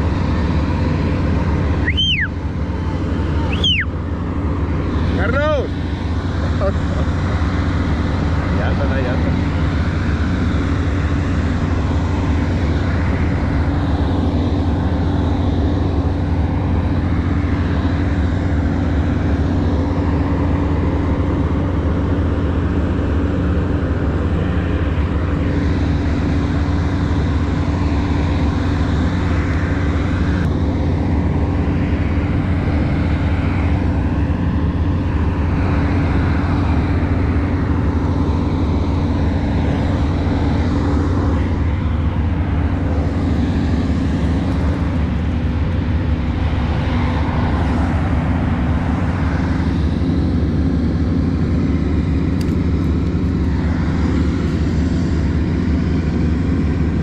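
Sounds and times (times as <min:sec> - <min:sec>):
engine drone: 0:00.0 - 0:57.0.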